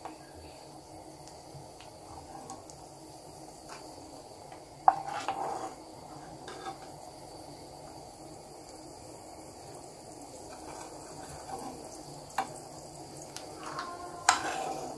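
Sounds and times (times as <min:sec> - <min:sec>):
hot ghee sizzling: 0:00.0 - 0:14.9
spoon knocking on frying pan: 0:04.8 - 0:05.4
spoon scraping pan: 0:04.9 - 0:07.0, 0:10.5 - 0:12.5, 0:13.5 - 0:14.9.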